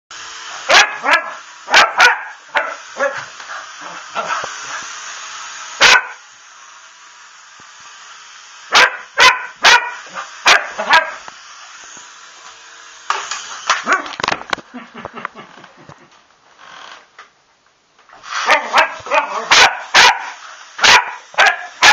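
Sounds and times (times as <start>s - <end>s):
dog barking excitedly: 0.7s - 4.4s, 5.8s - 6.2s, 8.7s - 11.2s, 13.8s - 14.2s, 18.4s - 21.9s.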